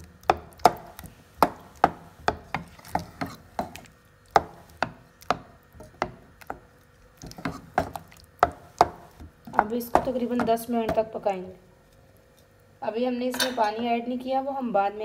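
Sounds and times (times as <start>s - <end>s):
wooden spoon stirring in metal pot: 0.0s - 11.3s.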